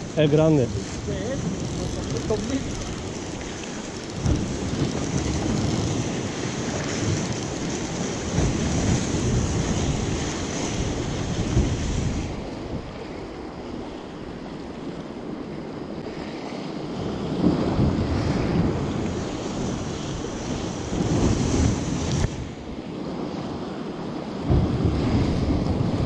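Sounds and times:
sea waves washing: 0.0 - 26.0
wind buffeting microphone: 0.0 - 26.0.

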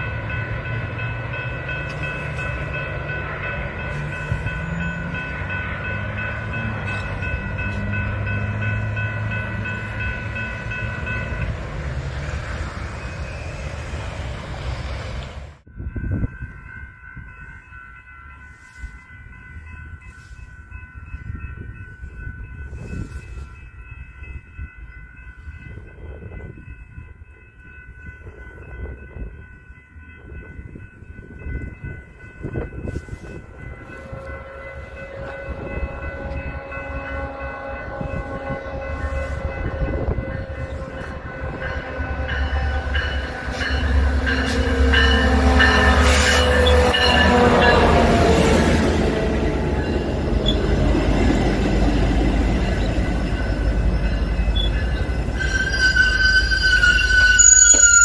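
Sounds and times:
diesel locomotive engine: 0.0 - 58.0
train wheel and brake squeal: 4.0 - 5.5, 40.9 - 47.9, 49.8 - 50.8, 52.4 - 58.0.

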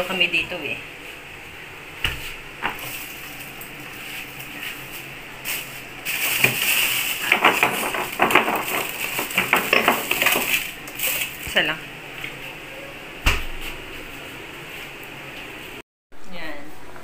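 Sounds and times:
ice cubes clinking in glasses: 6.1 - 11.3
glasses knocking: 7.2 - 10.6.

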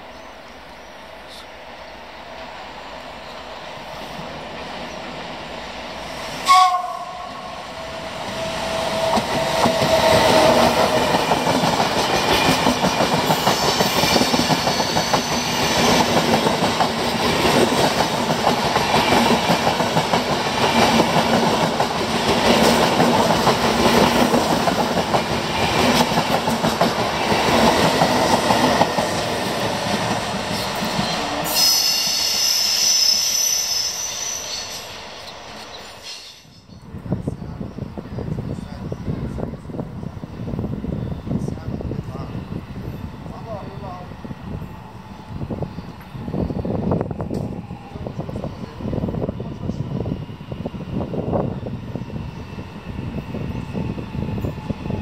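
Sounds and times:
train wheels on rails: 0.0 - 55.0
two-tone train horn: 6.4 - 7.7.

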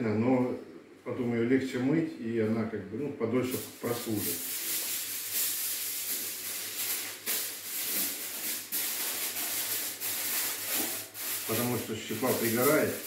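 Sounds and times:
aluminium foil crinkling: 3.5 - 13.0.

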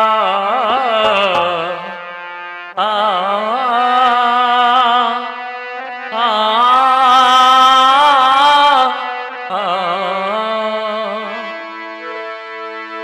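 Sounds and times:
man singing wordless melody: 0.0 - 11.9
held instrumental notes: 0.6 - 2.8.

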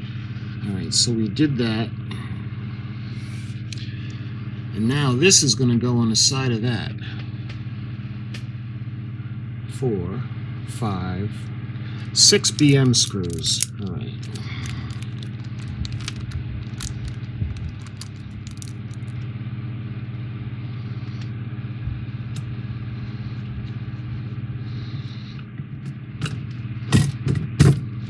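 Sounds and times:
low electrical hum: 0.0 - 28.0
small parts clicking and tapping: 12.4 - 19.2.

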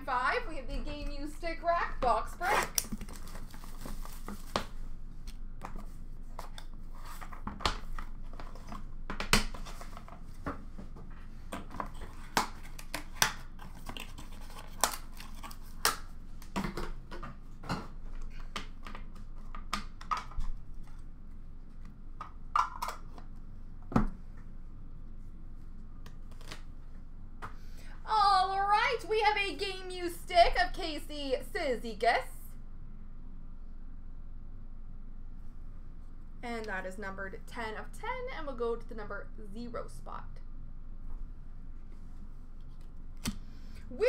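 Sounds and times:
cardboard packaging rustling: 2.6 - 4.9, 11.7 - 15.8.

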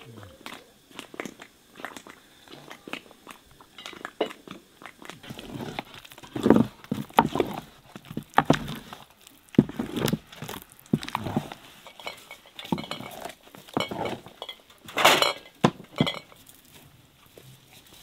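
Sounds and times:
dishes and utensils clinking: 11.4 - 16.4
dishes clattering with ringing: 11.8 - 16.4.

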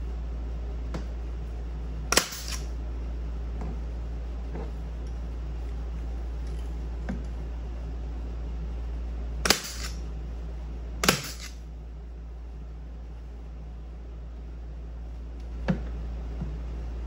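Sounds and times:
steady low hum: 0.0 - 17.0
pneumatic stapler firing: 2.1 - 2.7, 9.4 - 10.0, 11.0 - 11.6.

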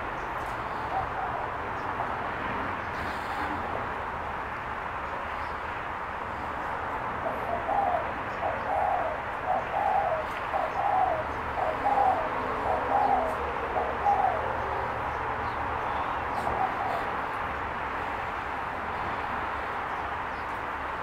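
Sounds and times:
dove cooing: 0.7 - 1.7, 7.2 - 15.0, 16.3 - 17.4.

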